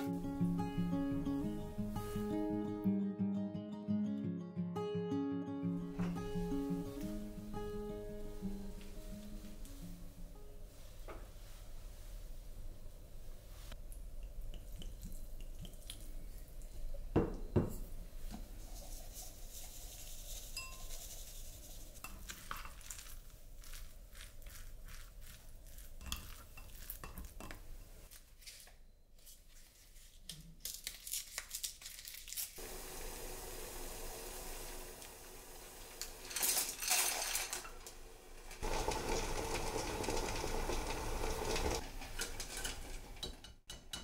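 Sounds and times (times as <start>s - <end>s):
dishes and utensils clinking: 26.0s - 28.0s, 38.8s - 44.0s
steady hiss: 32.6s - 36.8s.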